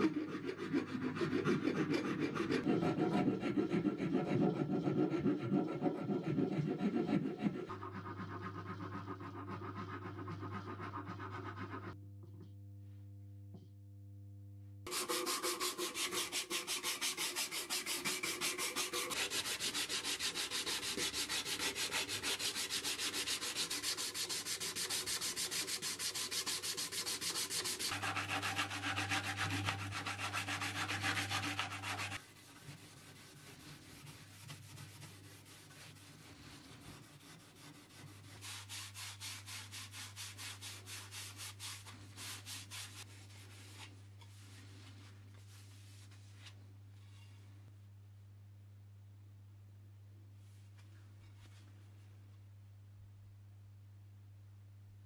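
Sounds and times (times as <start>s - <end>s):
sandpaper rasping on wood: 0.0s - 12.0s, 14.9s - 43.9s.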